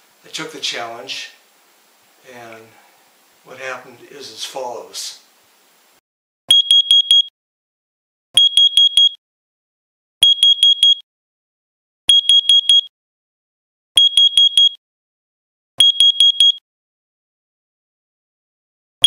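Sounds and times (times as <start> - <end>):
alarm high-pitched beeps: 6.5 - 7.3, 8.4 - 9.2, 10.2 - 11.0, 12.1 - 12.9, 14.0 - 14.8, 15.8 - 16.6.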